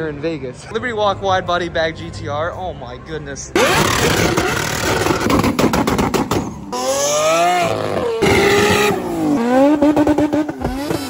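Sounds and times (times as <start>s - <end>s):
car engine revving through exhaust: 3.6s - 11.0s.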